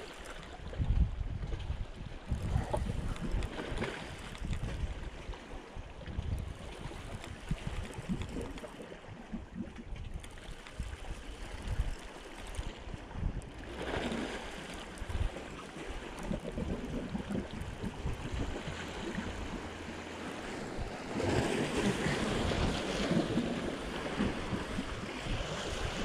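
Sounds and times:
wind rumbling on microphone: 0.0 - 26.0
waves washing against rocks: 10.3 - 26.0.

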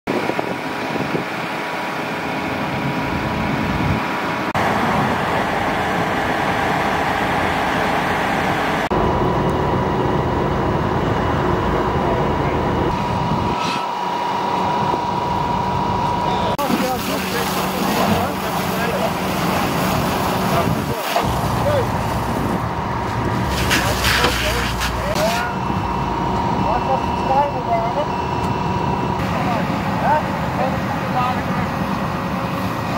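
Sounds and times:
fire engine pump rushing: 0.1 - 32.9
hoses spraying water: 16.6 - 25.6
steady high tone: 25.0 - 31.7.

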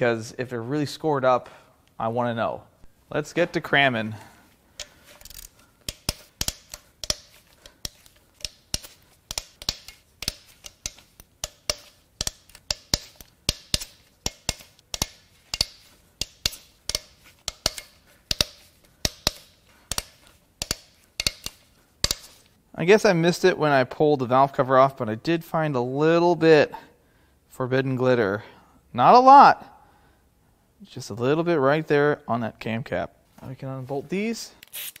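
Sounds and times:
ratchet wrench clicking: 4.8 - 22.3.

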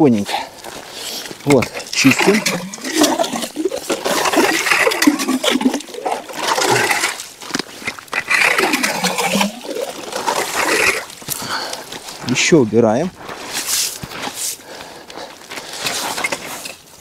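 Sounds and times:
slush and water sloshing: 1.5 - 11.3.

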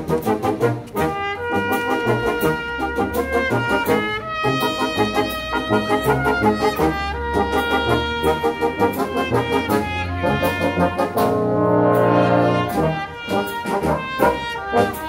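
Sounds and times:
trumpets and trombones: 0.0 - 15.0.

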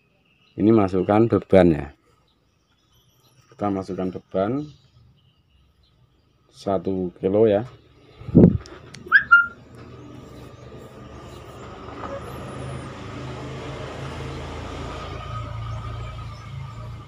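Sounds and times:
low engine rumble: 7.8 - 17.0
high chirp: 8.2 - 9.6.

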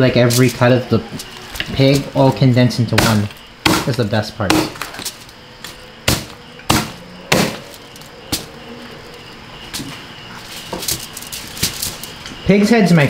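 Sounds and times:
faint high chirring: 0.0 - 3.6.

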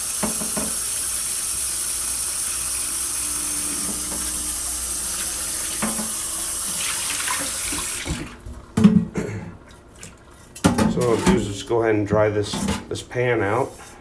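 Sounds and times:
faucet running into frying pan: 0.0 - 8.3.

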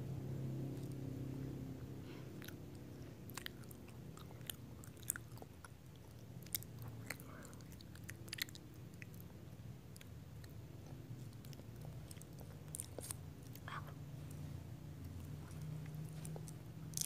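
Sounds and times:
chewing crunchy snack bar: 2.3 - 13.9, 15.0 - 17.0.

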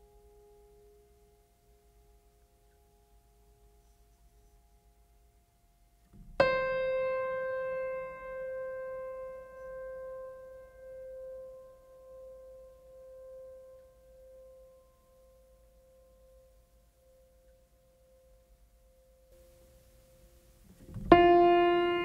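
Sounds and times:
struck piano note ringing: 20.9 - 22.0.

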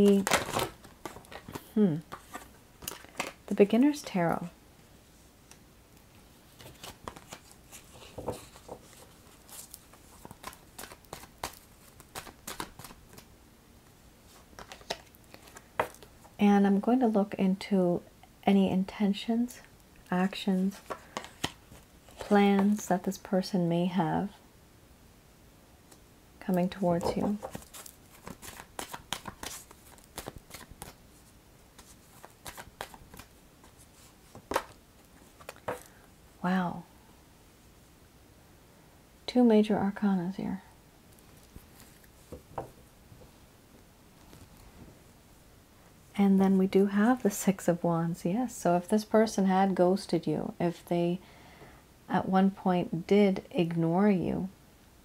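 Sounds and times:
cards being shuffled: 0.0 - 3.4, 6.5 - 13.3, 14.3 - 16.1, 20.6 - 22.8, 26.6 - 35.9.

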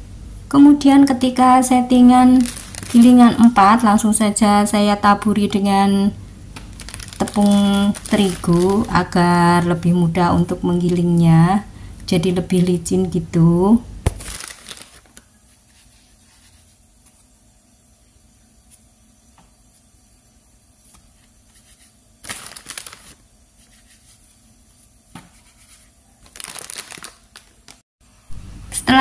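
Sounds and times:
dough rustling on paper: 2.1 - 4.0, 6.6 - 9.7, 14.1 - 17.4, 20.8 - 27.8.

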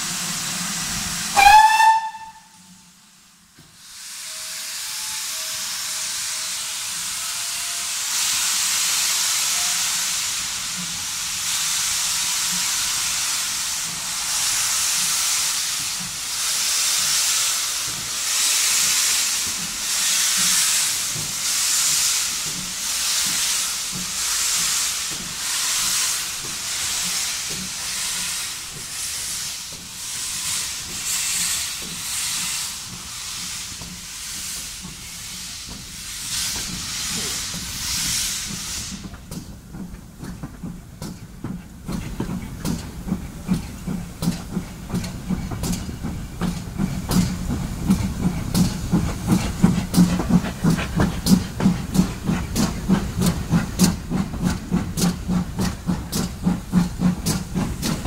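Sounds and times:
steam hissing: 0.0 - 58.0
steam locomotive whistle: 1.3 - 2.8, 4.1 - 8.1, 9.3 - 10.2
locomotive exhaust puffs: 10.0 - 58.0.

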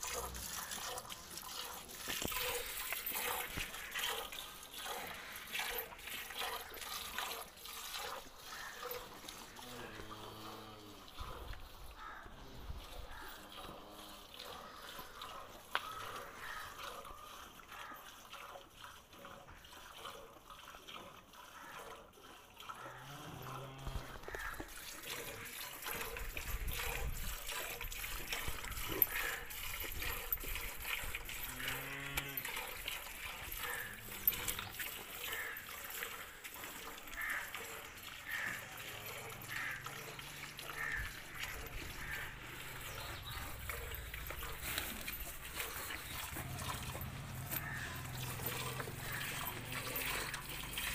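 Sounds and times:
milk squirting into metal bucket: 0.0 - 50.9
cow mooing: 9.6 - 11.2, 22.9 - 24.3, 31.4 - 32.6, 33.6 - 34.7.

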